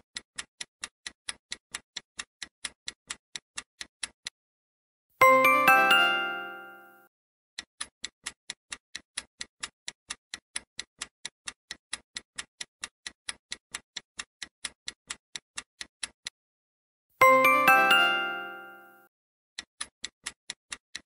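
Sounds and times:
clock-like ticking: 0.0 - 4.4, 7.6 - 16.4, 17.2 - 18.9, 19.6 - 21.0
chime: 5.2 - 7.1, 17.2 - 19.1.

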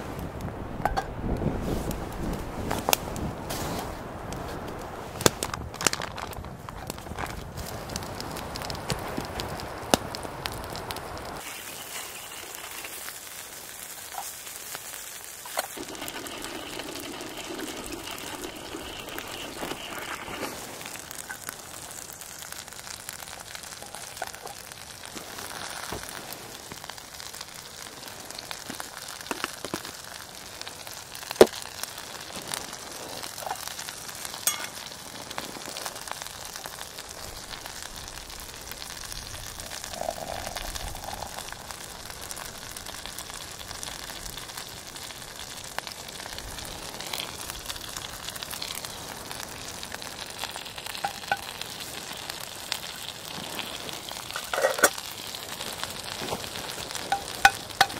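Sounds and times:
sausages sizzling on griddle: 6.6 - 57.9.

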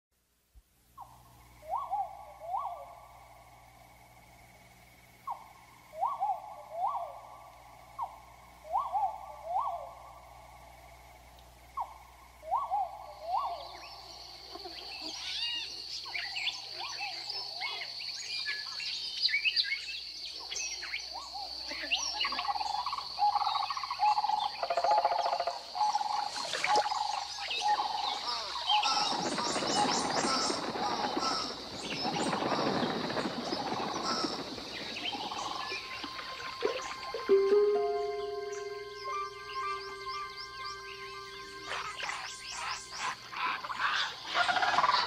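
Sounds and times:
high-pitched drone: 35.2 - 43.2.

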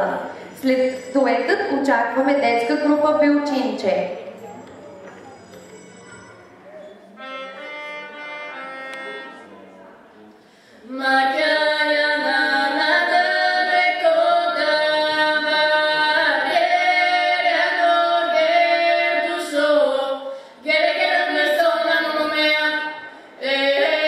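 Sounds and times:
women singing folk duet: 10.9 - 24.0.

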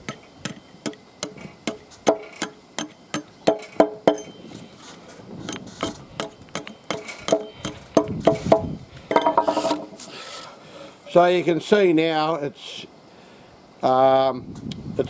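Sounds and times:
hatchet chopping wood: 0.0 - 4.3, 5.8 - 9.8.

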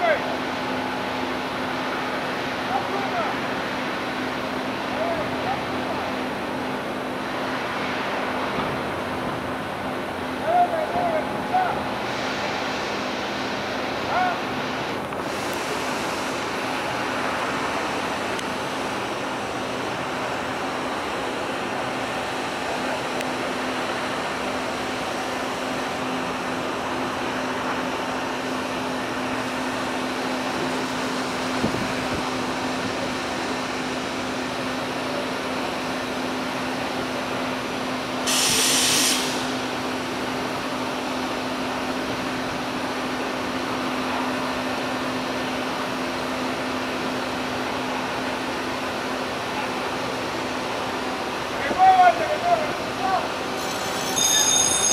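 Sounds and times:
steady mechanical hum: 0.0 - 54.9
short hiss: 38.3 - 39.6.

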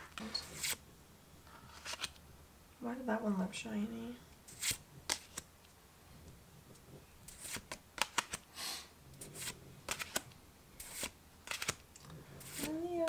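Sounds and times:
trading cards snapping and sliding: 0.1 - 0.8, 1.7 - 2.2, 4.5 - 5.5, 7.3 - 8.5, 9.2 - 12.8
card swish: 4.5 - 5.4, 9.3 - 10.2, 10.8 - 11.8.

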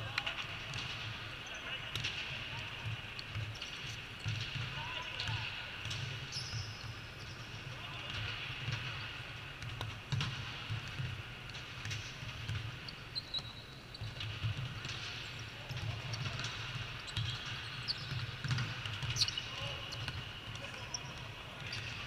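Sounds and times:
volleyball hits and thuds: 18.1 - 19.2.

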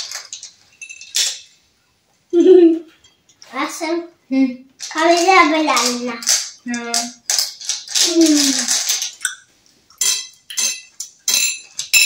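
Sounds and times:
candies clinking in ceramic bowl: 0.0 - 1.6, 4.8 - 12.0
child's voice: 3.5 - 7.2, 8.0 - 8.7.

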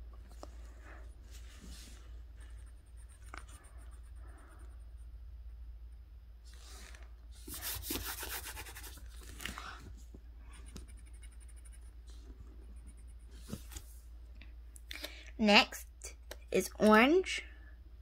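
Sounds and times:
drawing tool scratching on paper: 7.5 - 9.0.

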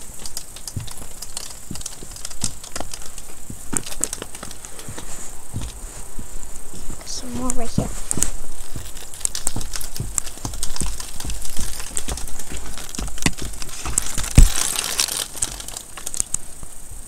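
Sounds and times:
icicles snapping off: 0.0 - 5.8, 7.4 - 16.5
crinkly rustle: 0.0 - 16.6.

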